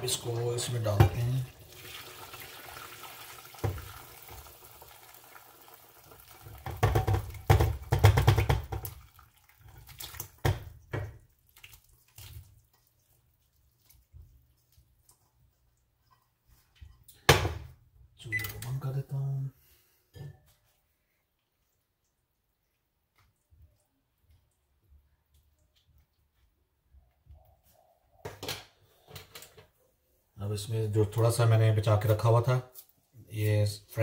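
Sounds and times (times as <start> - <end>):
liquid pouring: 0.0 - 15.8
food splashing and scraping: 0.0 - 17.2.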